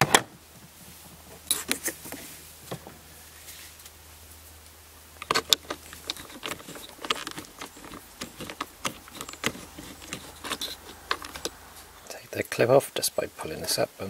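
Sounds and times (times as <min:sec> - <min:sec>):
metal tool clicking on plastic: 0:05.2 - 0:11.6.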